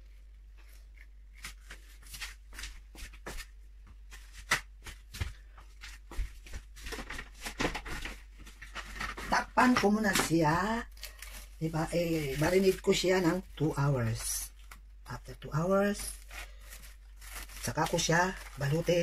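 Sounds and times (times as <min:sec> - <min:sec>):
kitchen items knocking and rustling: 0:06.6 - 0:11.4.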